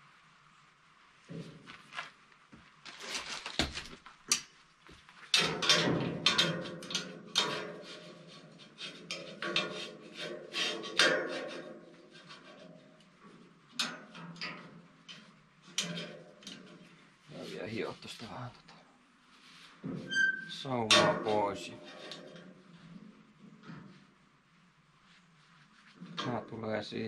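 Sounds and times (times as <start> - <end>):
metal latch clanking: 5.4 - 7.6.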